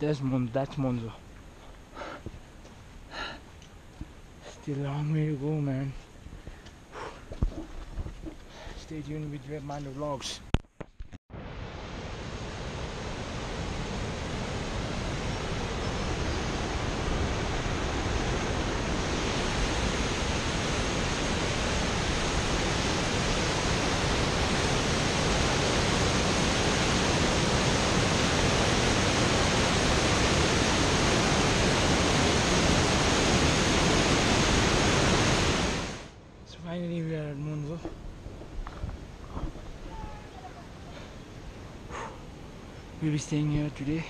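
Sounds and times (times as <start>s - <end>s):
river rushing over boulders: 11.3s - 36.2s.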